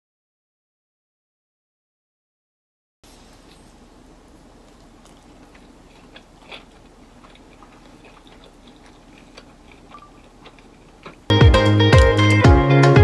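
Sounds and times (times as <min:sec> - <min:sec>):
person chewing food: 0:04.2 - 0:11.3.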